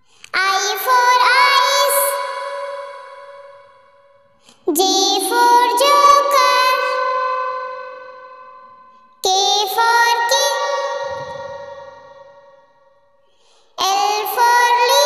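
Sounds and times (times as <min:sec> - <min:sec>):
child singing: 0:00.3 - 0:03.4, 0:04.6 - 0:08.0, 0:09.2 - 0:12.2, 0:13.8 - 0:15.0
music: 0:00.4 - 0:15.0.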